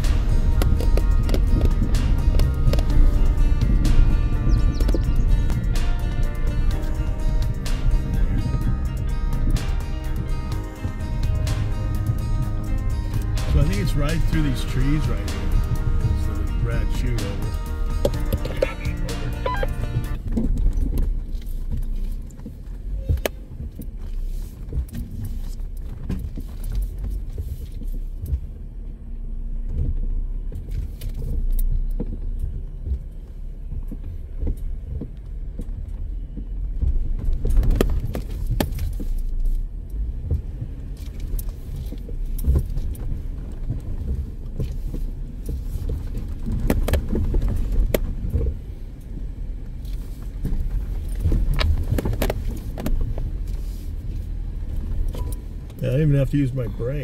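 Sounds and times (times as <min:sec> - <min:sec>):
off-road vehicle engine rumble: 0:00.0 - 0:57.0
vehicle clattering over rocks: 0:36.7 - 0:39.3, 0:40.3 - 0:48.6.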